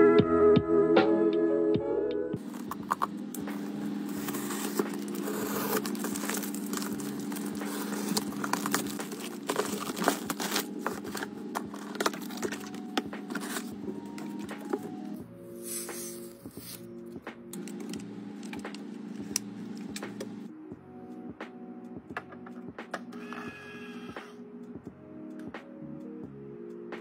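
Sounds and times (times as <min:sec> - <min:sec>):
cardboard box opening: 0:02.4 - 0:15.1
packaging crinkling: 0:02.4 - 0:16.8
steady low hum: 0:02.4 - 0:20.5
box cutter slicing tape: 0:04.1 - 0:10.7.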